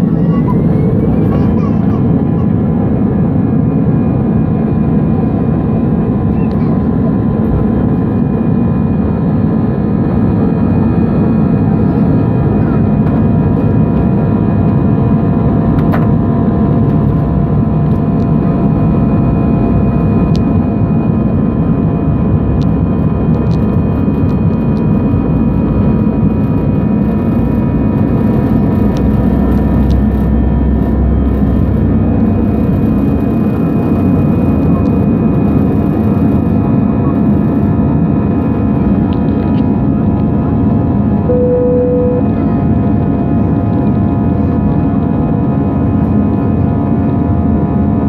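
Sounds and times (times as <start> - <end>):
jet engine rushing in cabin: 0.0 - 48.0
faint whining tones: 41.3 - 44.6.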